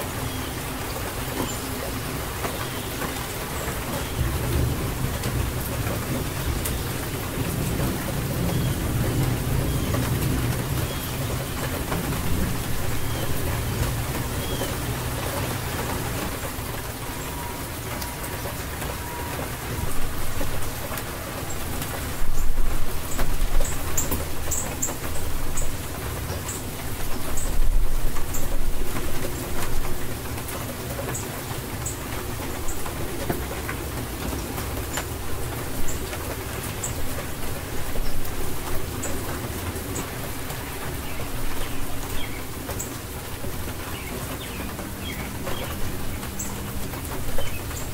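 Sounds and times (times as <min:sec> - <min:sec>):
steady rain falling: 0:00.0 - 0:47.9
rolling thunder rumble: 0:04.1 - 0:14.8.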